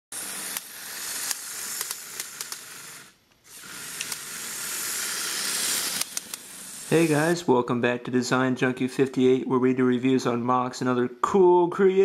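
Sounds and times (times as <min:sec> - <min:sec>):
toy motor whirring: 0:00.1 - 0:07.4
plastic tracks clicking: 0:00.3 - 0:02.8, 0:03.8 - 0:04.4, 0:05.0 - 0:06.5.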